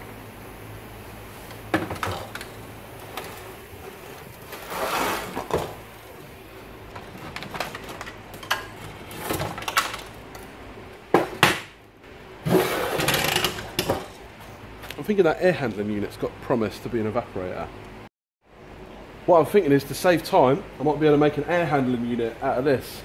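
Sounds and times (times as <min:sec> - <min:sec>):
plastic housing knocks and clatter: 0:01.7 - 0:02.4.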